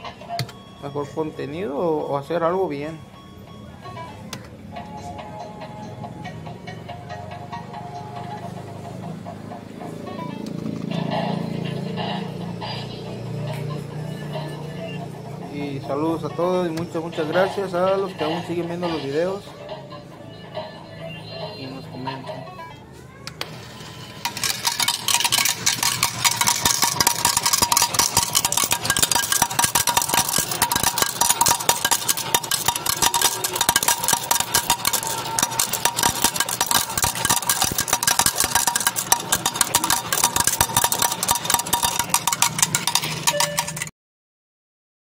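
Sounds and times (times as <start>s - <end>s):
coins clattering into metal tray: 24.2s - 43.9s.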